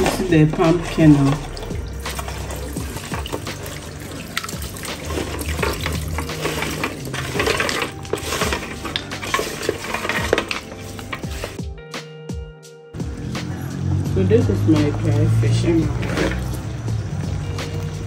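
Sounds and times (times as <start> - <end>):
wet squelching and sloshing: 0.0 - 11.6, 14.6 - 18.0
nuts clicking against metal bowl: 1.4 - 11.6.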